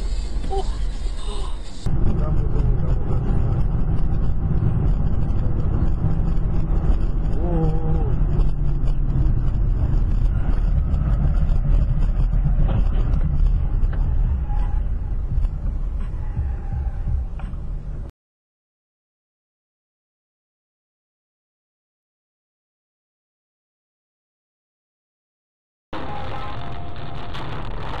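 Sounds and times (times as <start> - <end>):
car driving rumble: 0.0 - 18.1, 26.0 - 28.0.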